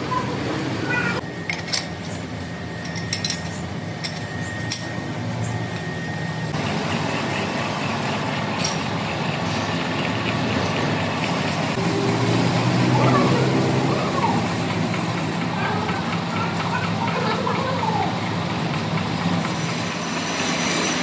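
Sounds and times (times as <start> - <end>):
steady high whine: 0.0 - 8.8, 10.2 - 21.0
factory machinery rumbling: 0.0 - 21.0
metallic clinks: 2.8 - 4.9.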